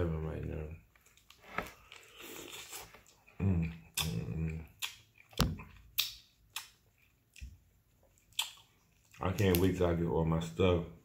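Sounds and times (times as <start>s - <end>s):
person humming: 3.4s - 4.6s.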